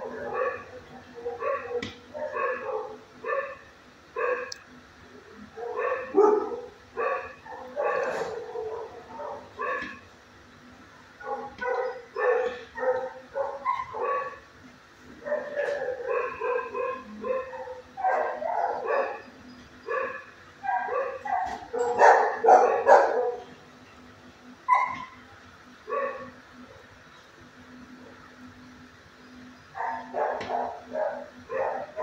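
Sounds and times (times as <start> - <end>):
dog barking: 0.0 - 3.6, 4.2 - 4.6, 5.5 - 10.0, 11.2 - 14.4, 15.2 - 19.3, 19.9 - 23.5, 24.7 - 25.2, 25.9 - 26.3, 29.8 - 32.0.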